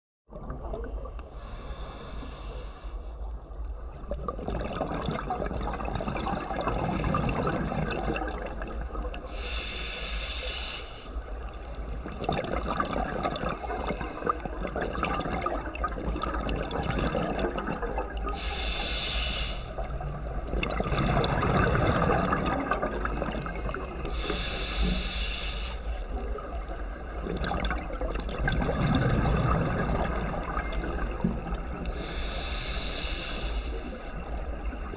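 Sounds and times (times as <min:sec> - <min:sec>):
regulator hissing inhalations: 0:01.4 - 0:03.2, 0:09.3 - 0:11.5, 0:18.4 - 0:19.9, 0:23.1 - 0:26.3, 0:31.9 - 0:34.9
exhaust bubbling underwater: 0:04.0 - 0:09.3, 0:12.0 - 0:18.5, 0:19.7 - 0:25.1, 0:26.1 - 0:32.8.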